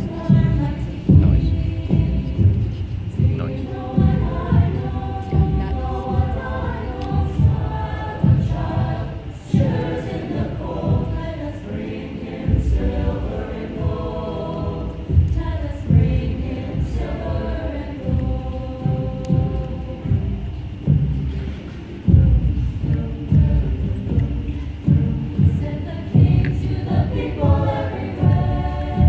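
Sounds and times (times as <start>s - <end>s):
choir singing in parts: 0.0s - 29.0s.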